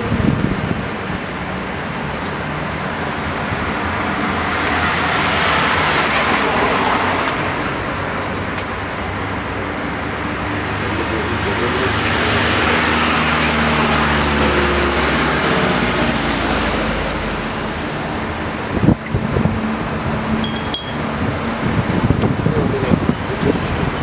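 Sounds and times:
street traffic noise: 0.0s - 24.0s
vehicle passing: 3.0s - 22.1s.

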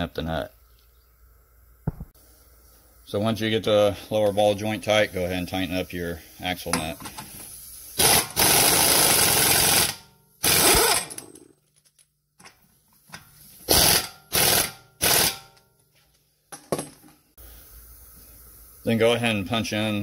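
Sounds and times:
impact wrench hammering: 13.7s - 15.6s.

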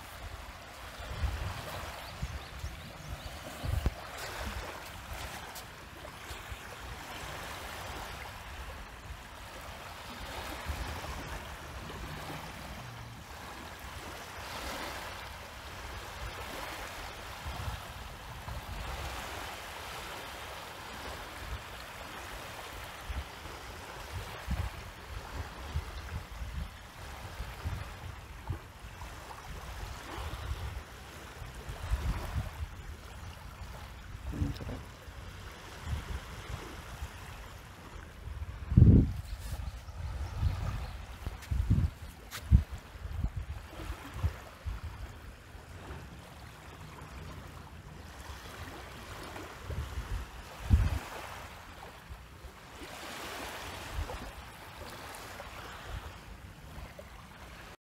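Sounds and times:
wind rumble on microphone: 0.0s - 9.0s, 15.8s - 19.5s, 23.0s - 46.2s, 48.1s - 51.4s
sea water lapping: 0.0s - 17.6s, 26.9s - 57.8s.

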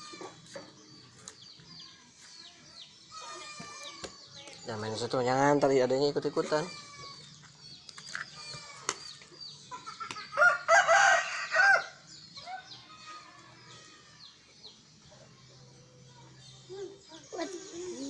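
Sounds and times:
small birds chirping: 0.0s - 18.0s
rooster crowing: 10.4s - 12.7s.

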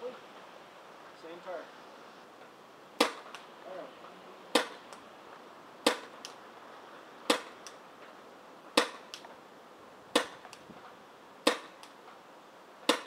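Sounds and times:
paintball pistol shots: 3.0s - 3.5s, 4.5s - 5.0s, 5.8s - 6.4s, 7.2s - 7.8s, 8.7s - 9.3s, 10.1s - 10.6s, 11.4s - 12.0s.

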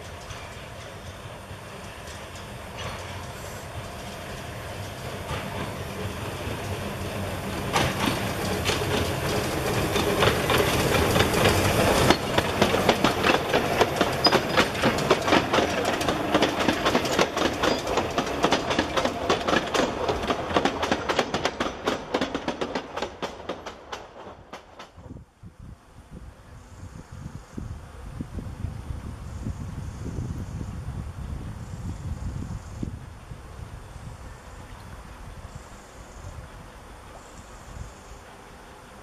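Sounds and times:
wheels clicking over rail joints: 0.0s - 25.2s
steam locomotive passing: 0.0s - 39.0s.

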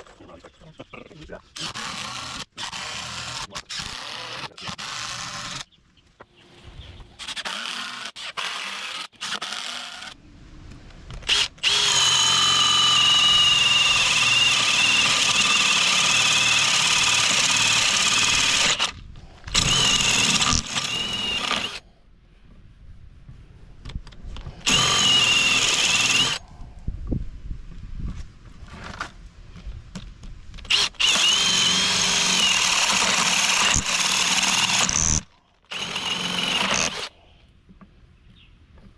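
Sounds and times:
cordless drill boring into wood: 1.6s - 5.7s, 7.2s - 10.2s, 11.2s - 21.8s, 24.6s - 26.4s, 30.7s - 37.1s.

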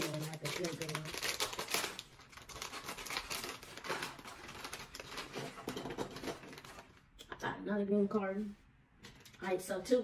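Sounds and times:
foil wrapper crinkling and tearing: 0.0s - 7.0s.

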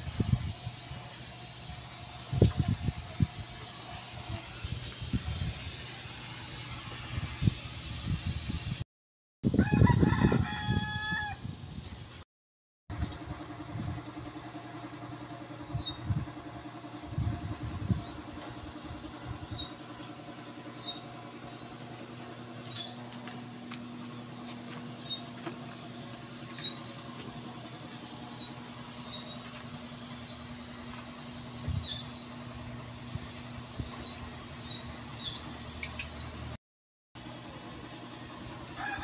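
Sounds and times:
vehicle engine idling: 12.9s - 36.6s
short high squeaks: 19.5s - 19.8s, 20.8s - 21.8s, 22.6s - 23.0s, 24.9s - 25.4s, 26.5s - 27.0s, 28.3s - 30.4s.

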